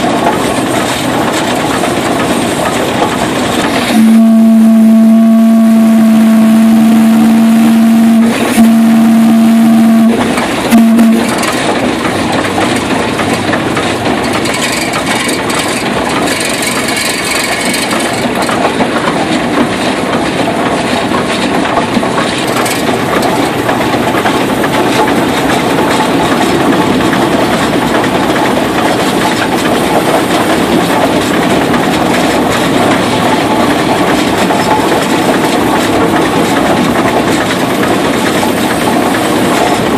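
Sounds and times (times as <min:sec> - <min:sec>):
steam engine and gearing running: 0:00.0 - 0:39.9
steam whistle blowing: 0:03.8 - 0:11.4.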